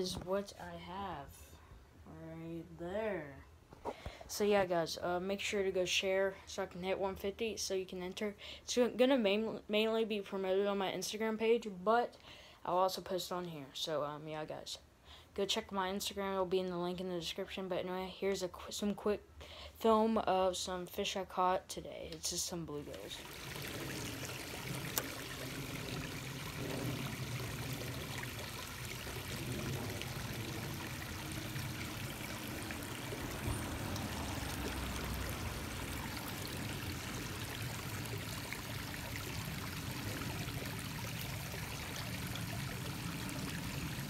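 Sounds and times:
stream water running: 22.7s - 44.0s.

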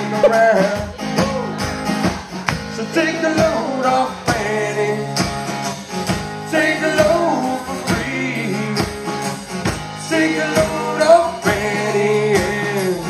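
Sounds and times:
person singing: 0.0s - 1.7s
strummed acoustic guitar: 0.0s - 13.0s
drum kit: 5.2s - 13.0s.

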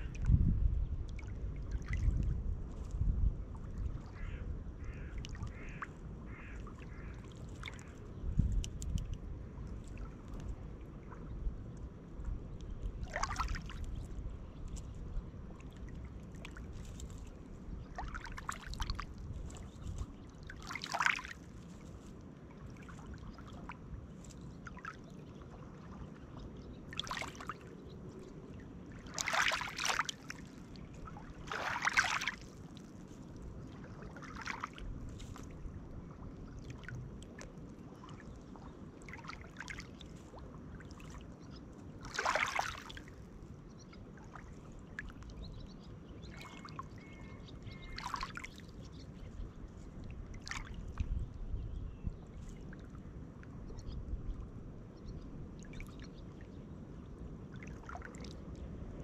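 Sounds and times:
waves lapping on pebbles: 13.0s - 13.8s, 15.7s - 26.2s, 26.9s - 38.3s, 39.0s - 43.3s, 47.9s - 49.0s
wave splashing over stones: 29.0s - 30.4s, 31.4s - 32.4s.

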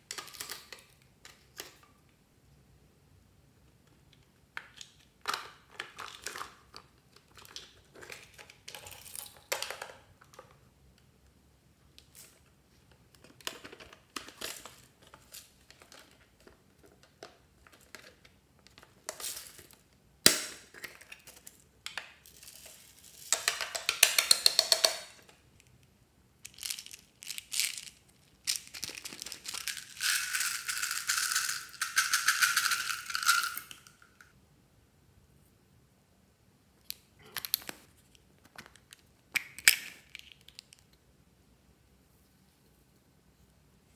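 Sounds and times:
beads rattling: 26.4s - 34.2s.

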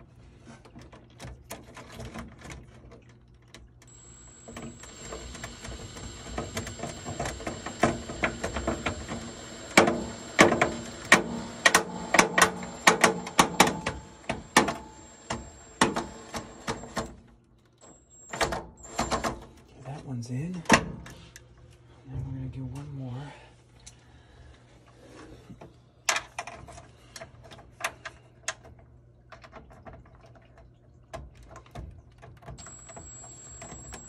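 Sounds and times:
rapid sharp clicks: 3.9s - 17.0s
cordless drill motor whine: 3.9s - 17.1s, 17.8s - 19.4s, 32.6s - 34.0s.

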